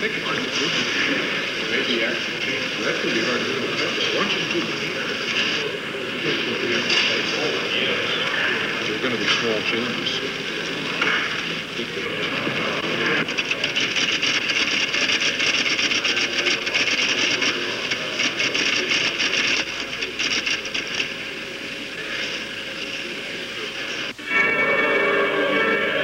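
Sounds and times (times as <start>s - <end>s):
typewriters and adding machines rattling: 9.0s - 22.4s
rapid keystrokes: 13.2s - 21.1s.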